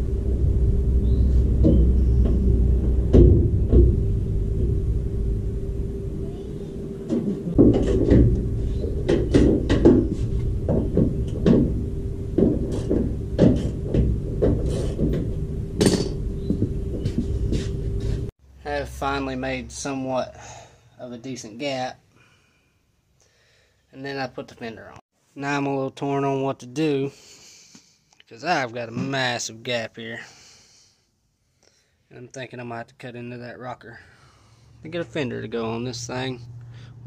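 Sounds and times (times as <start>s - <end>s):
steady hum: 0.0s - 20.4s
metal door knocks and clunks: 1.6s - 4.2s, 7.1s - 17.2s.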